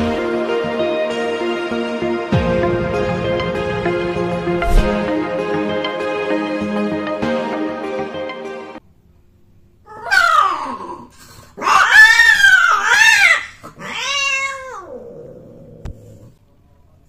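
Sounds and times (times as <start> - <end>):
cat yowling: 9.9 - 15.3.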